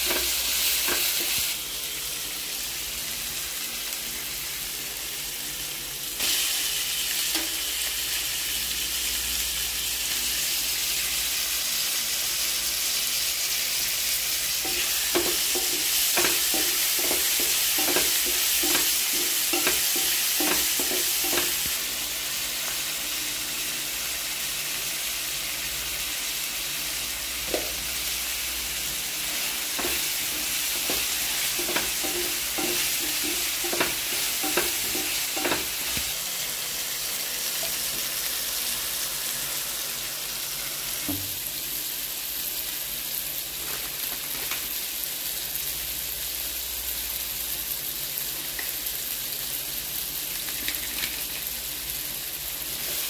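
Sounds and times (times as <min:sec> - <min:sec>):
spatula scraping and tapping pan: 0:00.0 - 0:01.4, 0:14.6 - 0:21.8, 0:29.7 - 0:36.1
vegetables sizzling in hot oil: 0:00.0 - 0:53.0.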